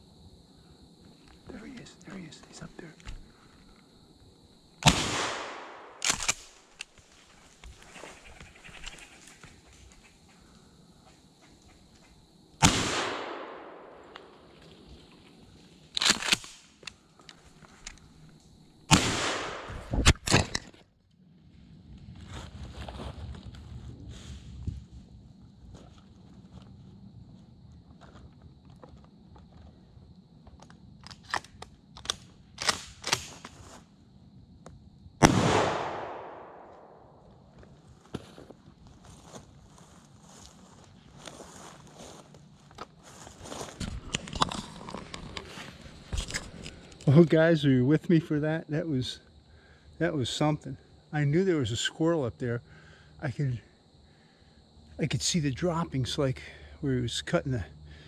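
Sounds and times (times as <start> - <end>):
shotgun blasts with echo: 4.8 - 6.6, 12.6 - 14.3, 18.9 - 20.2, 35.2 - 37.2.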